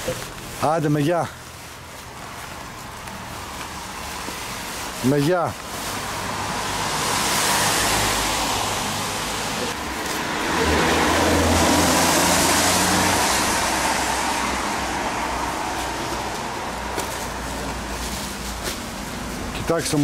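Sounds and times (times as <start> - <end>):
street traffic noise: 0.0 - 20.0
vehicle passing: 2.6 - 20.0.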